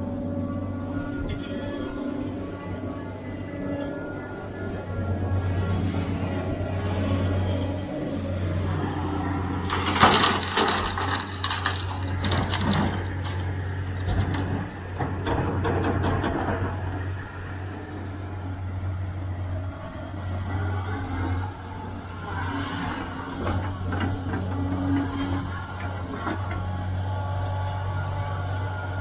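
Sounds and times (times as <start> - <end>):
excavator diesel engine running: 0.0 - 29.0
dirt and rock falling into steel bed: 9.6 - 16.6.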